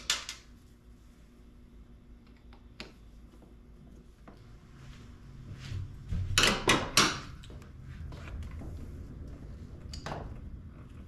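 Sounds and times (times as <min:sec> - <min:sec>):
low handling rumble: 0:07.5 - 0:11.0.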